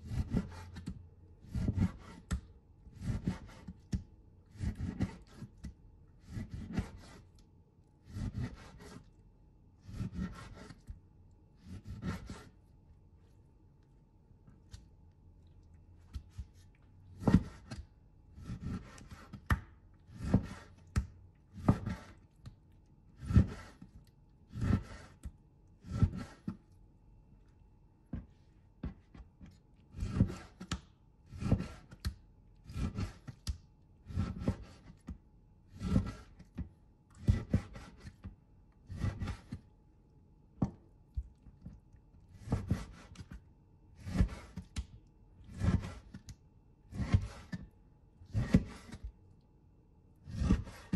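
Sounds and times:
knife cutting meat: 0.0s - 7.4s, 8.0s - 9.1s, 9.8s - 11.0s, 11.6s - 12.6s, 16.1s - 22.3s, 23.2s - 26.6s, 29.4s - 36.6s, 37.2s - 38.3s, 38.9s - 39.6s, 41.6s - 43.4s, 44.0s - 44.8s, 45.4s - 47.6s, 48.3s - 49.1s, 50.2s - 50.9s.

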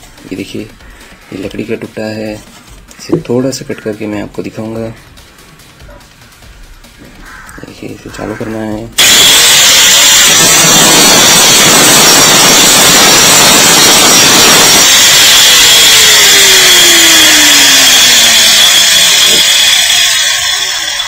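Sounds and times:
angle grinder cutting wood: 9.0s - 21.0s.

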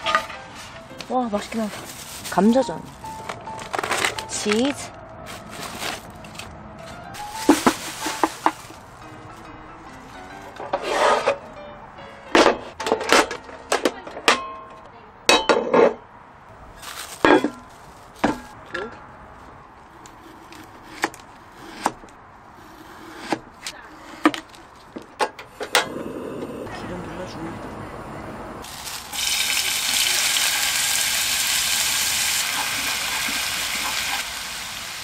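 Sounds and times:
cookware knocks and clinks: 12.4s - 16.0s.

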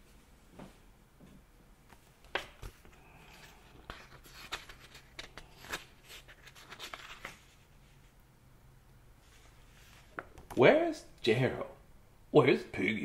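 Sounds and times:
paper pages rustling and turning: 1.9s - 8.1s, 9.2s - 10.6s.

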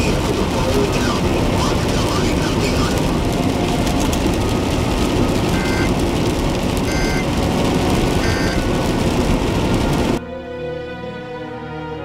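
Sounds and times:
vehicle road and engine noise: 0.0s - 10.2s
two-tone electronic beeps: 5.5s - 5.9s, 6.8s - 7.3s, 8.2s - 8.7s.

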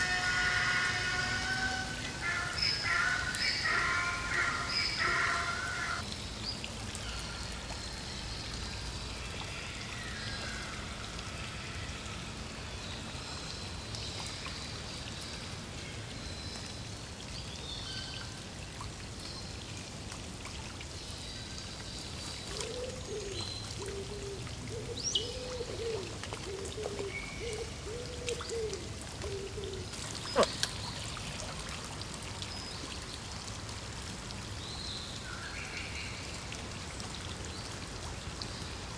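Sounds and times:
low wavering calls: 0.0s - 6.0s
rain pattering on a pond: 0.0s - 38.9s.

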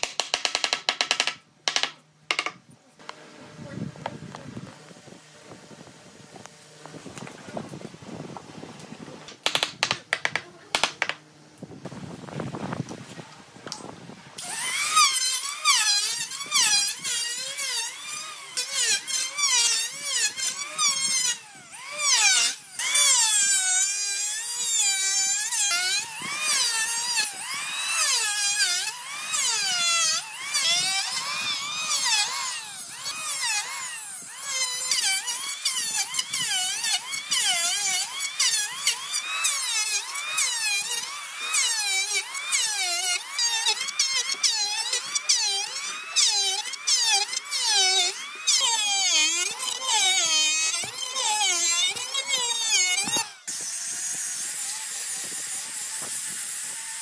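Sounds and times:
electric planer cutting wood: 14.4s - 57.0s.

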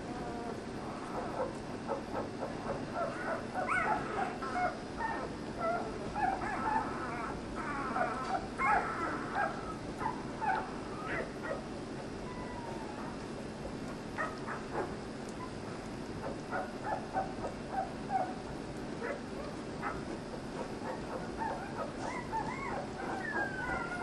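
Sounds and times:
puppies squeaking and whimpering: 2.2s - 11.6s, 12.2s - 13.2s, 19.8s - 24.0s.

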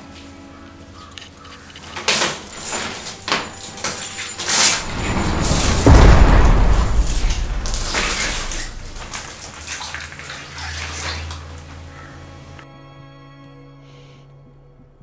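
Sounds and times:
water splashing: 1.3s - 12.6s
metal chain scraping on concrete: 2.2s - 9.5s
heavy low boom: 4.8s - 9.5s.

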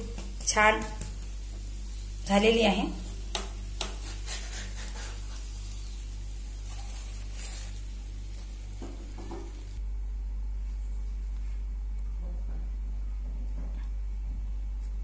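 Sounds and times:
flatbread sizzling in pan: 0.0s - 9.8s
steady low hum: 0.0s - 15.0s
spatula scrapes and taps: 3.3s - 5.2s.

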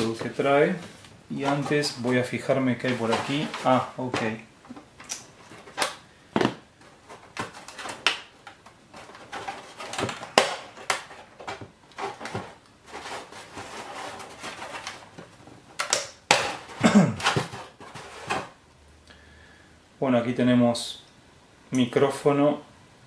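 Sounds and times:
hands rummaging in cardboard box: 0.1s - 4.4s, 8.9s - 15.4s.

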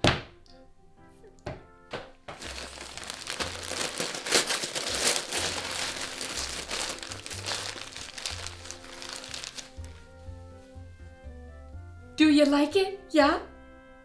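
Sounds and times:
paper crinkling and tearing: 2.4s - 10.2s
background music with bass line: 4.9s - 12.4s.

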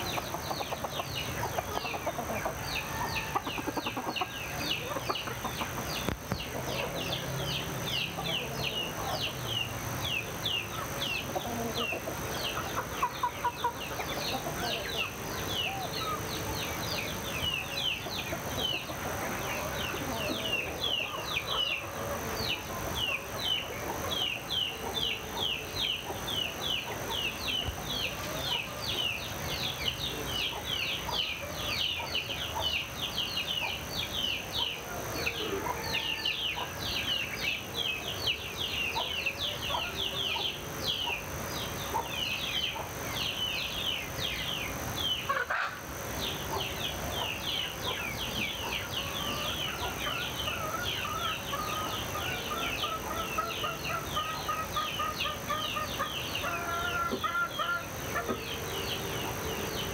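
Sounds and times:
chickens clucking: 0.0s - 59.9s
songbirds chirping: 0.0s - 59.9s.

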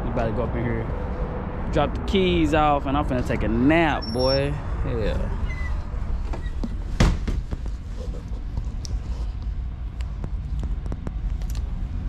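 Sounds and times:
camera handling rumble: 7.4s - 11.7s.

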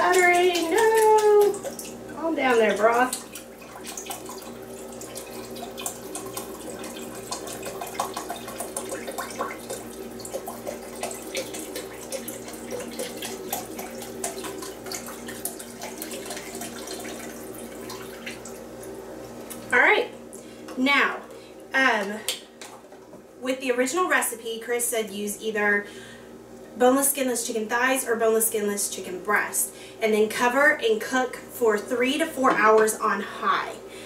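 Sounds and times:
liquid pouring and splashing: 0.0s - 19.0s.

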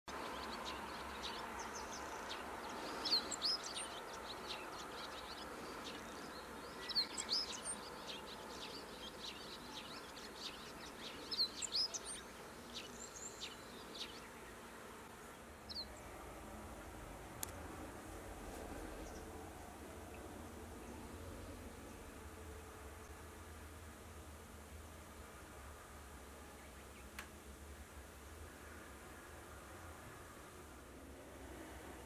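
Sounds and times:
small birds chirping: 0.1s - 16.2s, 18.4s - 19.4s
steady background noise: 0.1s - 32.0s.

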